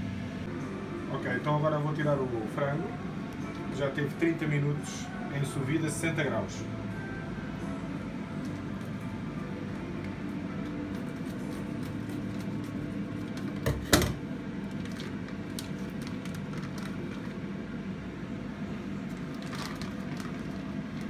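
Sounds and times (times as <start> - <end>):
steady low hum: 0.0 - 21.0
plastic bag crinkling: 14.6 - 17.5, 19.0 - 21.0.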